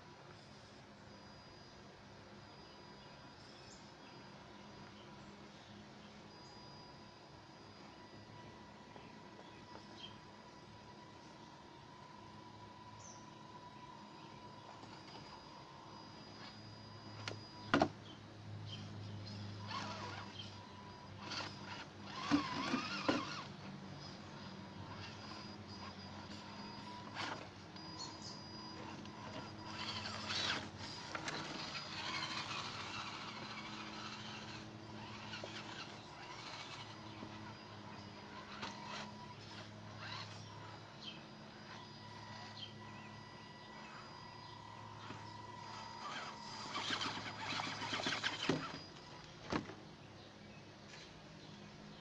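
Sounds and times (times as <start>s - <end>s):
electric motor and gears whining: 0.0s - 50.1s
toy truck scraping over rocks: 19.6s - 43.0s, 43.7s - 49.0s.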